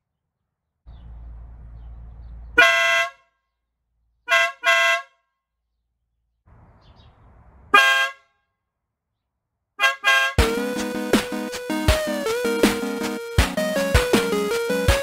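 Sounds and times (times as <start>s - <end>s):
car horn blasts: 2.6s - 3.2s, 4.3s - 5.1s, 9.8s - 10.4s.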